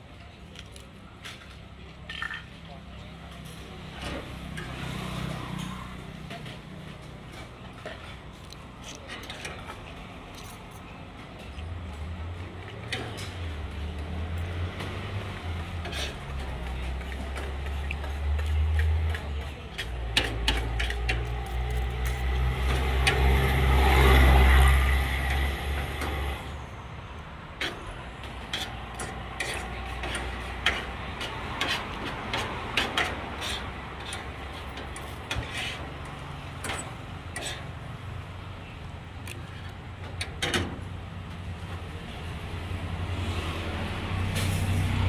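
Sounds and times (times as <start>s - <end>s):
vehicle passing by: 3.8s - 7.1s, 13.5s - 26.7s, 42.2s - 45.0s
cutlery scraping on a plate: 15.6s - 21.8s, 28.4s - 36.0s, 36.6s - 37.7s.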